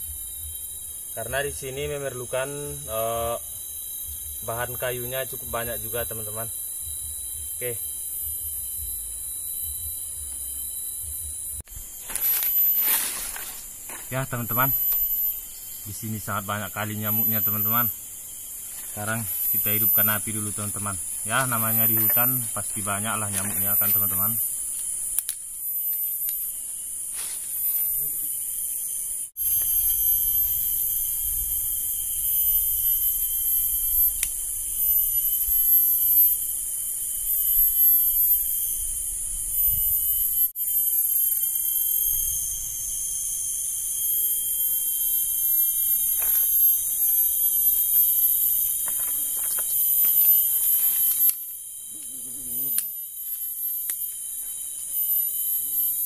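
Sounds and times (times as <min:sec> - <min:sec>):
shrill insect chorus: 0:00.0 - 0:56.0
rustling and twigs snapping: 0:11.7 - 0:14.1, 0:24.7 - 0:25.5, 0:48.8 - 0:51.6.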